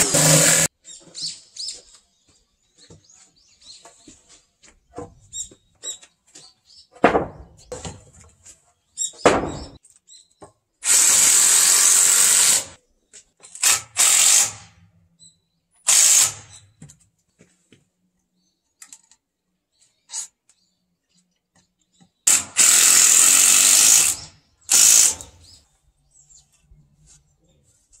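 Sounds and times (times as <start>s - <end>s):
cordless drill driving screws: 0.0s - 0.7s, 10.8s - 12.8s, 13.6s - 14.6s, 15.9s - 16.6s, 22.3s - 25.4s
wooden boards knocking: 7.0s - 8.1s.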